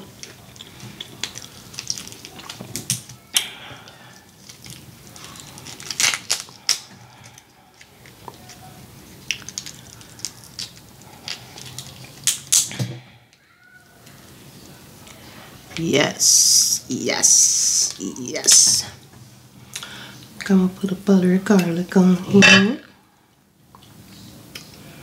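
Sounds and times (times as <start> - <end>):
shrimp shell crackling: 0.1 - 12.7.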